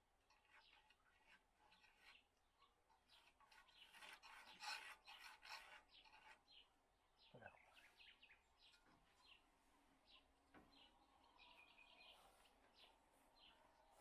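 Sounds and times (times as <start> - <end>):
faint scraping strokes: 0.2 - 2.3, 3.0 - 6.7
faint bird chirps: 0.3 - 14.0.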